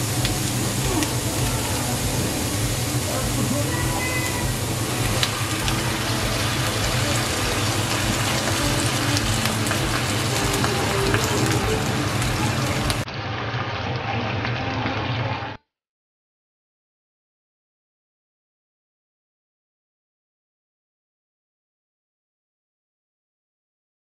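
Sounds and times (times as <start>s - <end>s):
sauce sizzling in a pan: 0.0s - 13.0s
vegetables sizzling in a wok: 0.0s - 13.0s.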